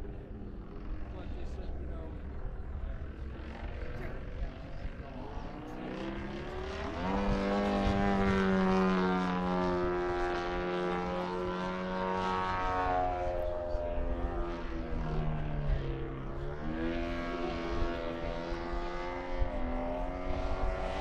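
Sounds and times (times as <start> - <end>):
model airplane motor and propeller: 0.0 - 21.0.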